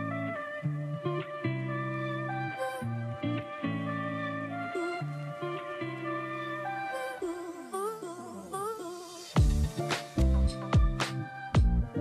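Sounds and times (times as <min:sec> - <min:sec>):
held bass notes: 0:09.4 - 0:12.0.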